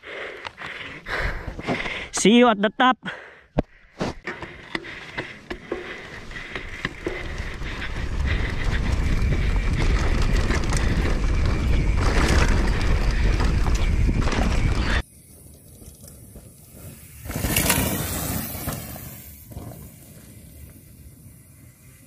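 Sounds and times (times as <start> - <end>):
bike clicks and knocks over bumps: 4.2 - 21.8
wind rushing on microphone: 7.0 - 15.0.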